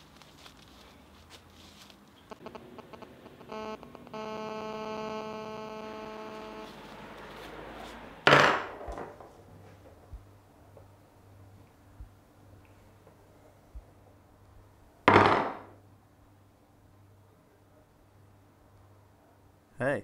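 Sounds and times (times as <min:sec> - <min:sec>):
electronic buzzing tone: 0:02.3 - 0:07.2.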